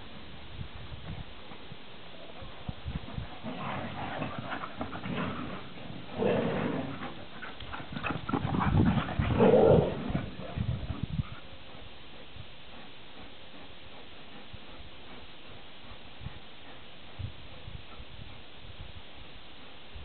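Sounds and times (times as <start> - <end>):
dogs vocalizing: 3.1 - 11.5.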